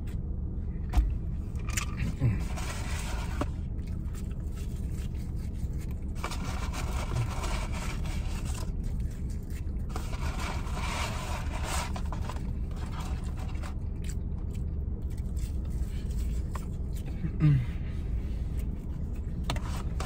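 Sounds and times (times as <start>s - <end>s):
low rumble inside car: 0.0s - 20.0s
paper carton rubbing and scraping: 2.4s - 3.6s, 4.4s - 13.8s
eating noises: 13.1s - 17.2s.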